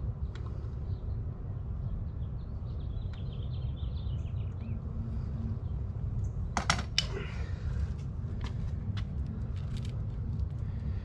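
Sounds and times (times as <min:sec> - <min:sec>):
small birds chirping: 0:00.0 - 0:06.6
steady low rumble: 0:00.0 - 0:11.0.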